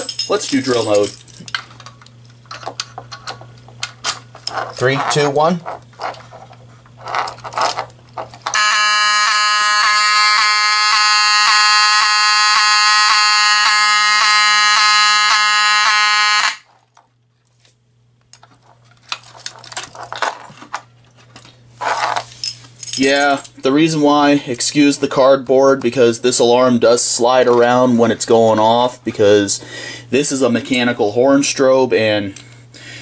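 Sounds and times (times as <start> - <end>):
key rattles and clicks: 0.0 - 6.4, 18.3 - 23.6
fire alarm horn buzzing: 8.5 - 16.7.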